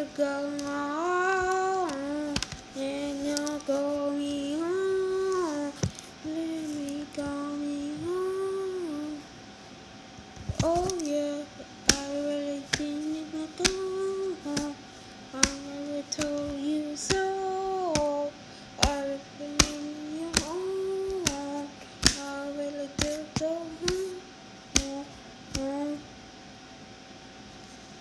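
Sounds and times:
child singing: 0.0s - 9.2s, 10.5s - 26.1s
sharp taps: 22.0s - 22.2s.

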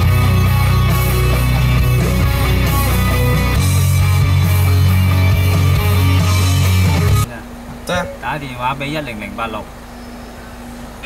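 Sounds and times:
loud rock music: 0.0s - 7.3s.

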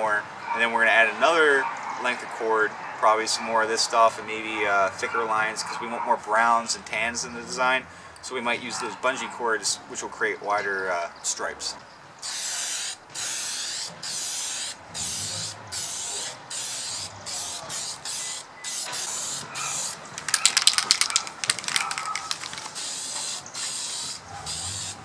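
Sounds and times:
spray paint can spraying: 12.2s - 25.0s
spray can rattling: 13.2s - 25.0s.

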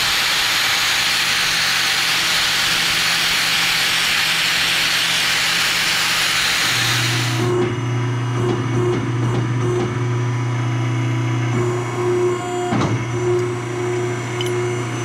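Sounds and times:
angle grinder grinding metal: 0.0s - 7.5s
low motor hum: 0.0s - 15.0s.

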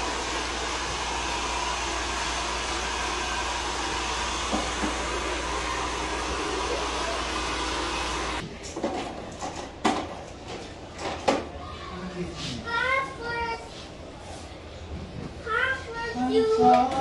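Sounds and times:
hair dryer running: 0.0s - 8.4s.

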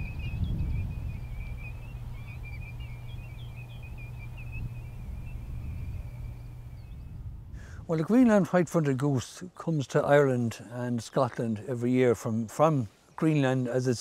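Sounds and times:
flock of birds whistling: 0.0s - 7.2s.

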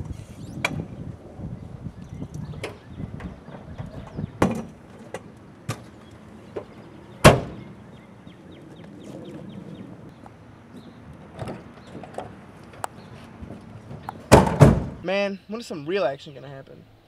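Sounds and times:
folding chairs knocking and clattering: 2.6s - 7.7s, 10.8s - 15.0s
car trunk lid slamming: 7.2s - 7.8s, 14.0s - 15.0s.

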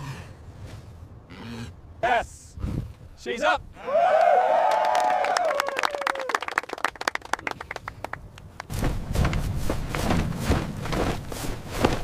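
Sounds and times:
people clapping: 4.1s - 8.7s.

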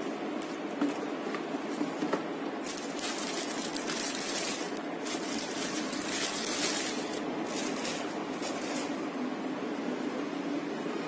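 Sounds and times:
steady low hum: 0.0s - 11.0s
plastic wrapping crinkling: 2.6s - 9.1s.

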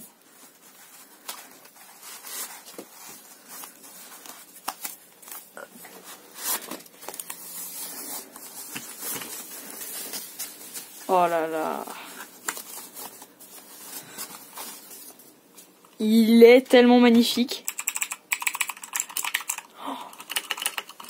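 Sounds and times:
packaging rustling and crinkling: 0.0s - 15.9s.

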